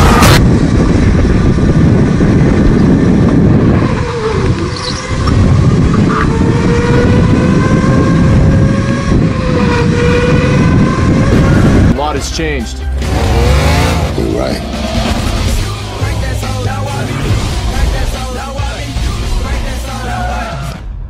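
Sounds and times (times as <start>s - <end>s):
go-kart engine whine: 0.0s - 12.0s, 13.0s - 16.0s.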